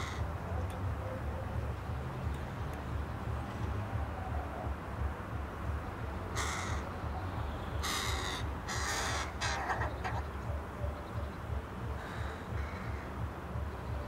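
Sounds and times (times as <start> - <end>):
crow cawing: 0.0 - 0.2, 6.4 - 6.9, 7.8 - 10.2, 12.0 - 13.1.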